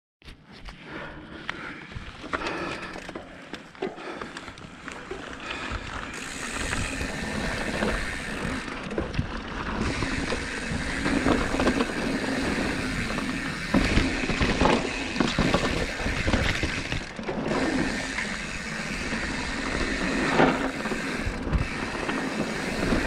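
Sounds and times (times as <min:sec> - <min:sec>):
bike tyres rolling on dirt: 0:00.7 - 0:23.0
bike knocking and rattling: 0:01.8 - 0:23.0.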